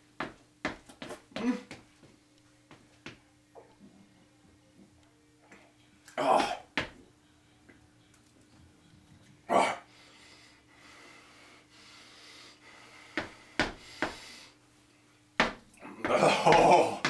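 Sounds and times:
man groaning and gagging: 6.2s - 6.7s, 9.5s - 9.9s, 15.8s - 17.0s
man breathing hard and snorting: 9.5s - 14.6s.

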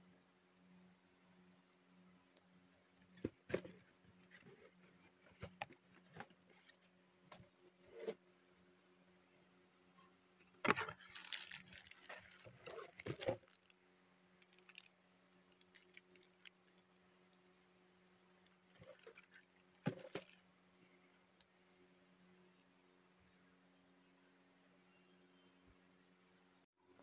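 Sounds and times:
faint steady hum: 0.0s - 27.0s
packaging rustling and crinkling: 10.6s - 13.8s, 14.4s - 14.9s, 15.5s - 16.8s, 18.7s - 20.4s.

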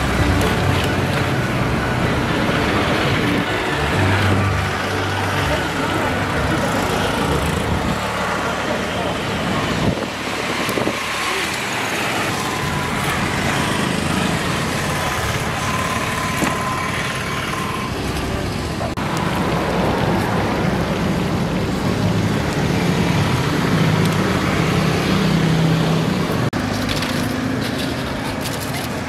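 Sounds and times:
low engine drone: 0.0s - 19.8s
traffic passing on busy street: 0.0s - 29.0s.

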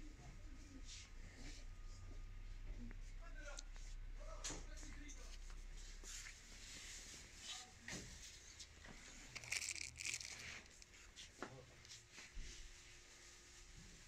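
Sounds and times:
plastic and fabric rustling: 5.6s - 14.0s.

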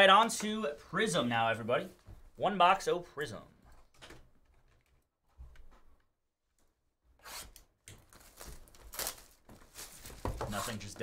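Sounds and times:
shrink wrap crinkling and ripping: 7.3s - 10.8s.

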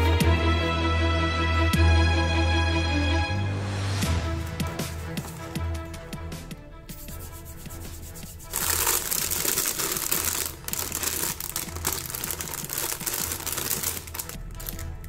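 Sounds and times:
plastic bags crinkling: 8.5s - 15.0s.

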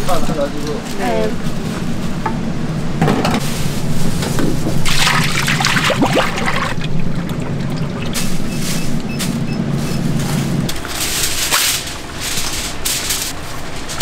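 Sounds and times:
low hum: 1.4s - 13.6s
oil pouring into fryer: 4.8s - 8.3s.

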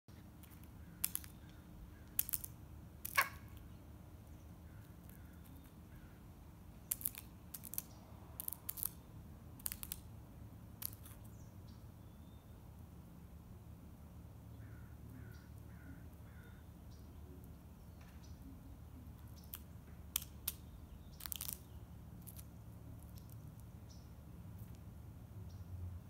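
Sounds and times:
crow beak pecking: 0.1s - 6.2s, 6.8s - 10.1s, 10.8s - 11.3s, 14.6s - 16.6s, 17.3s - 24.0s.

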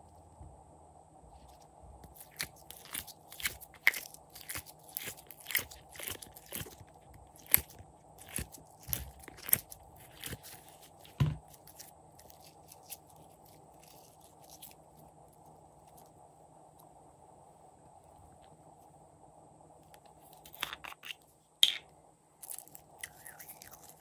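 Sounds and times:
slime crackling and squelching: 2.0s - 15.2s.

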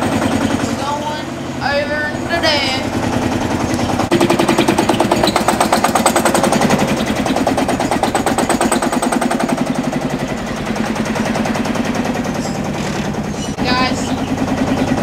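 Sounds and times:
tractor engine firing pops: 3.6s - 13.3s.

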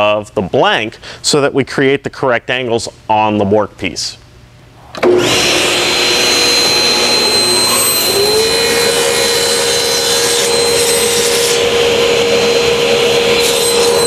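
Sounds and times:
table saw cutting wood: 5.0s - 14.0s.

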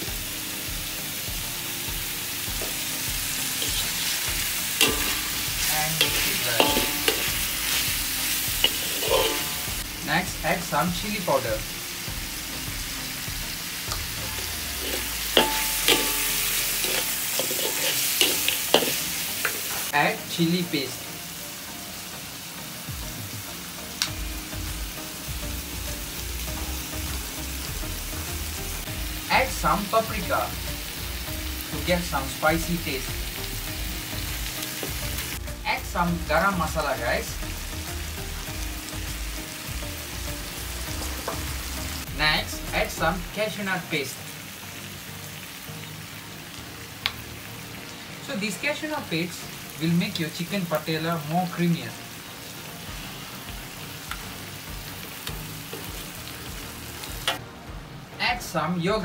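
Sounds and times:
chicken sizzling in oil: 0.0s - 57.4s
metal spatula scraping wok: 2.7s - 9.9s, 14.0s - 19.9s.

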